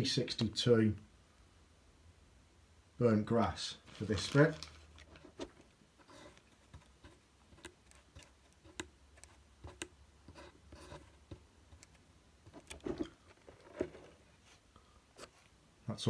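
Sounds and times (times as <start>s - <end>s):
fingers clicking and tapping: 6.7s - 10.4s.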